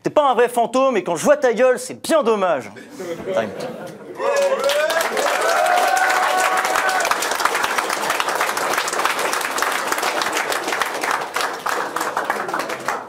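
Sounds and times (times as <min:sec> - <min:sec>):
crowd applauding: 0:04.2 - 0:13.0.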